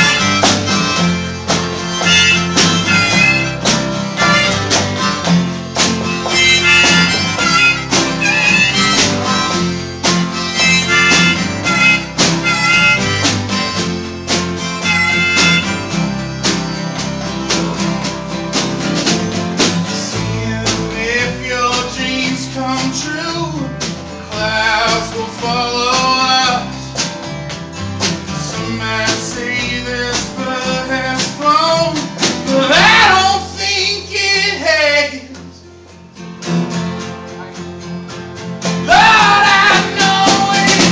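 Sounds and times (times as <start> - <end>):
snare drum beat: 0.0 - 20.0, 38.9 - 40.9
harmonica lead: 0.0 - 22.7, 38.8 - 40.9
steel guitar: 0.0 - 34.2
strummed acoustic guitar: 0.0 - 40.9.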